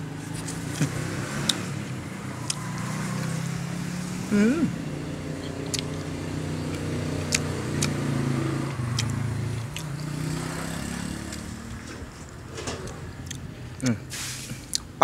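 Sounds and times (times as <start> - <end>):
vehicle engine humming: 0.0 - 15.0.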